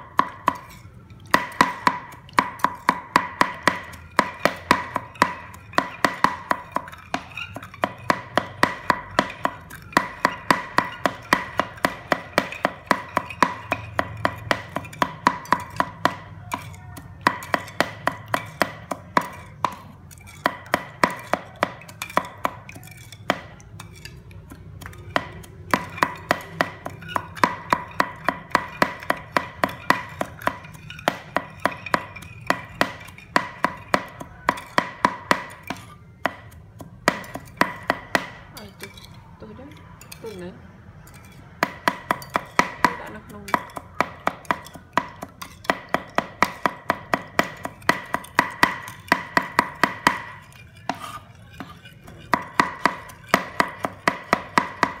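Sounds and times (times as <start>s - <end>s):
knife chopping on cutting board: 41.6s - 55.0s.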